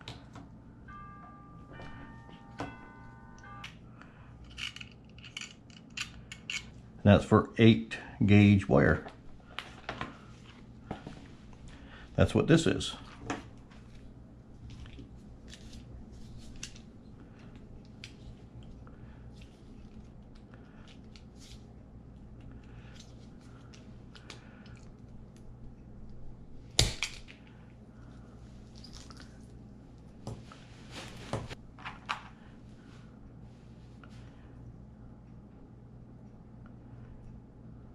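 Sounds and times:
small parts clicking and rattling: 4.4s - 6.8s.

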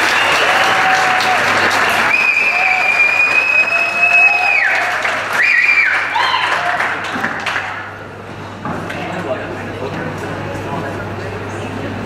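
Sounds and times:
audience applauding: 0.0s - 8.0s
high steady whistle-like tone: 2.1s - 4.8s.

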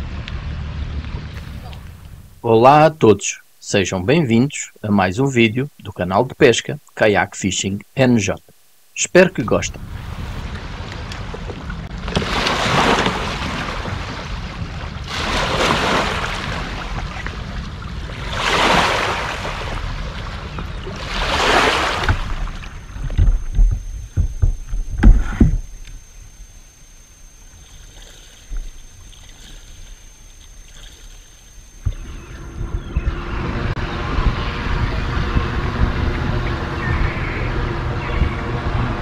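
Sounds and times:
rushes of water and hull noise: 8.2s - 39.0s
knocks and thumps on kayak: 18.4s - 26.0s.

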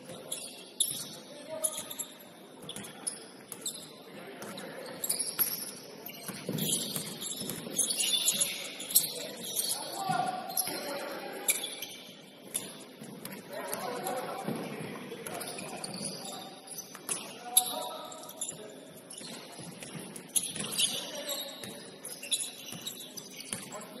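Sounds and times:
basketball bouncing on court: 6.2s - 7.8s.

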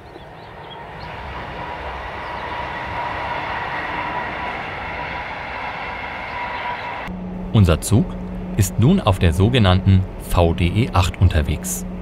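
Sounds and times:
steady high whine: 0.0s - 12.0s
train rolling noise: 0.0s - 12.0s.

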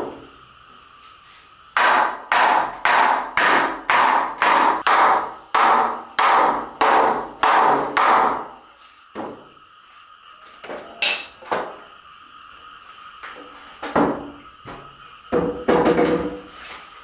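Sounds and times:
hammer blows on wooden frame: 1.8s - 8.5s.

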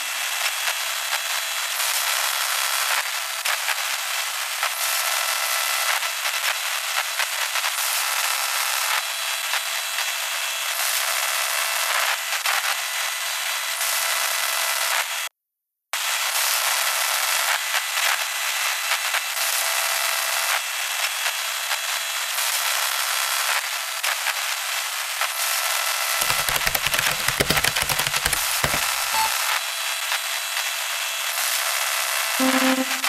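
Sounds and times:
faint high steady tones: 32.4s - 33.0s.

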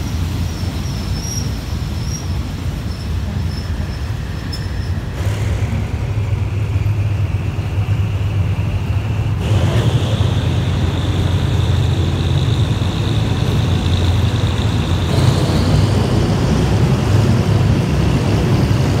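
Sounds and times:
train carriage rumbling on track: 0.0s - 19.0s
high whine: 3.9s - 19.0s.

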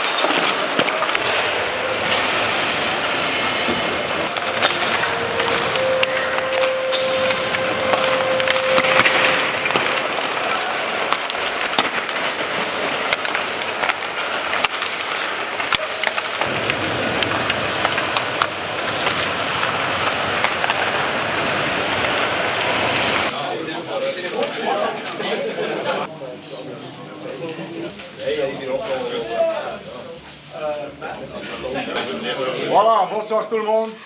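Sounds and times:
pucks clacking on sticks: 0.0s - 2.4s, 4.4s - 16.5s
arena hubbub: 0.0s - 19.4s, 20.0s - 33.7s
steady tone: 1.2s - 11.7s.

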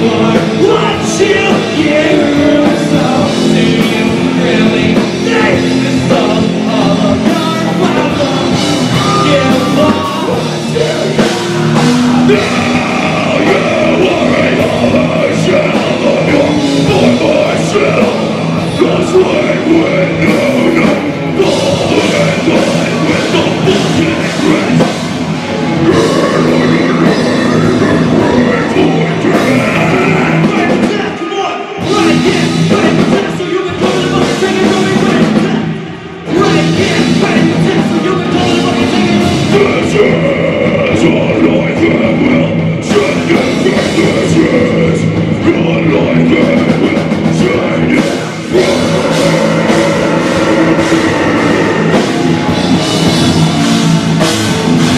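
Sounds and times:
bass guitar: 0.0s - 31.2s, 31.8s - 54.9s
distorted electric guitars: 0.0s - 54.9s
drum kit: 0.0s - 54.9s
shouted vocals: 0.0s - 54.9s.

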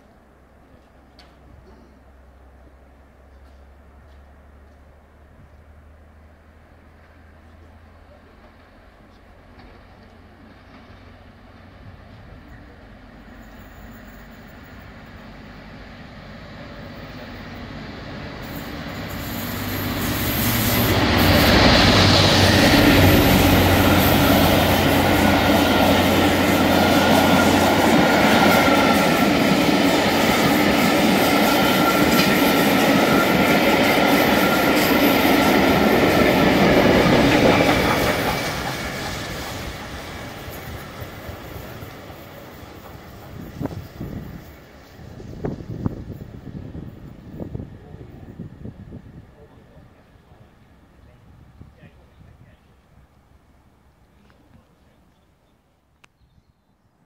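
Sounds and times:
train carriages rolling over rails: 7.0s - 15.8s, 16.5s - 48.2s
steam locomotive working hard: 7.6s - 51.7s.

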